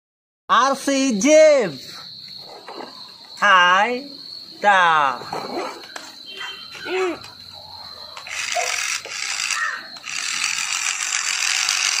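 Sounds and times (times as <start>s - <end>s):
toy motor whirring: 8.1s - 12.0s.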